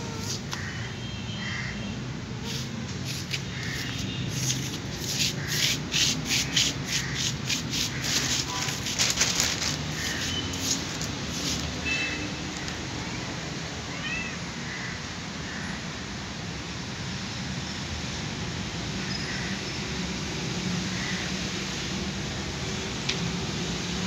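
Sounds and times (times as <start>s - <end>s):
plastic sheeting crinkling: 7.0s - 11.8s.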